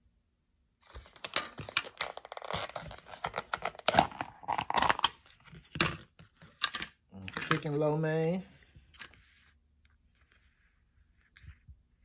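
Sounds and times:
plastic container crinkling and clicking: 1.0 - 7.7.

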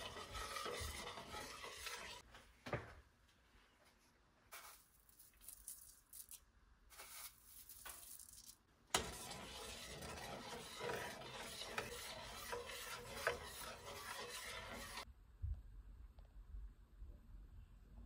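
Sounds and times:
utensils scraping: 0.0 - 2.2, 8.9 - 15.1.

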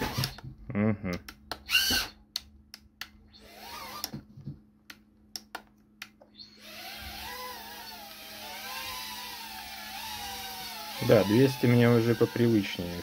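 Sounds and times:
drone motors high buzzing whine: 6.4 - 13.0.

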